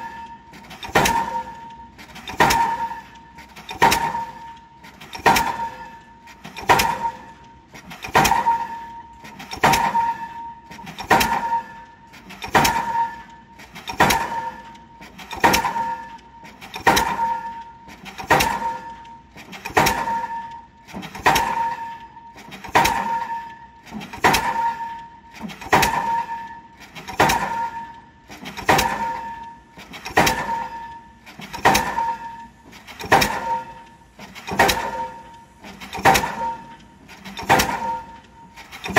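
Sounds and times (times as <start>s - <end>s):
pile hammer metallic bangs: 0.0s - 3.1s, 25.6s - 27.9s, 28.5s - 29.4s, 30.0s - 33.8s, 34.4s - 38.2s.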